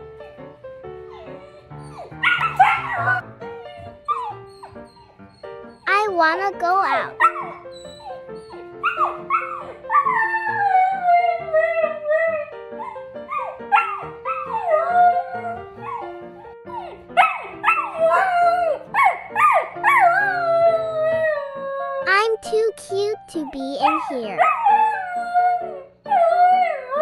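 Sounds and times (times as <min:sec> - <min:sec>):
background music: 0:00.0 - 0:27.0
puppy howling: 0:01.1 - 0:03.2, 0:07.2 - 0:16.1, 0:16.7 - 0:22.0, 0:24.4 - 0:27.0.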